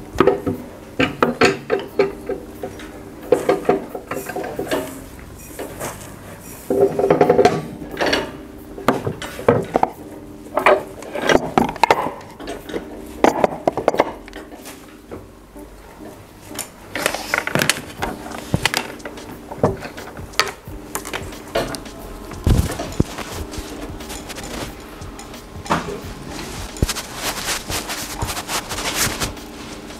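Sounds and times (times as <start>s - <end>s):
plastic parts and tools clattering: 0.2s - 10.0s, 10.6s - 15.2s, 16.0s - 29.9s.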